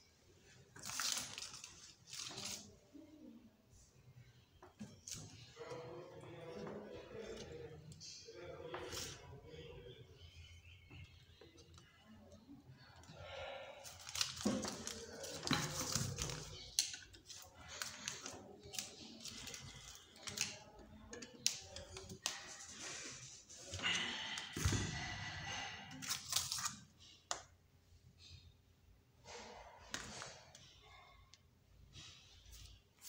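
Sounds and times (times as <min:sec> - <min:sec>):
newspaper rustling: 0:00.8 - 0:02.7.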